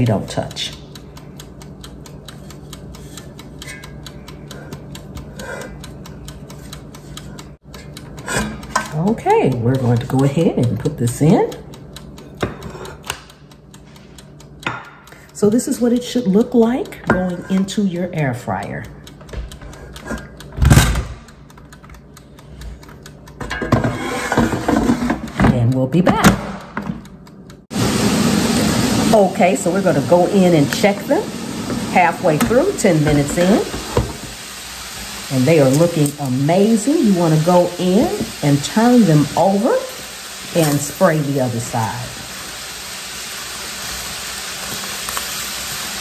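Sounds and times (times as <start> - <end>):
rapid mechanical ticking: 0.0 - 23.4, 35.4 - 42.0
low steady hum: 0.0 - 45.9.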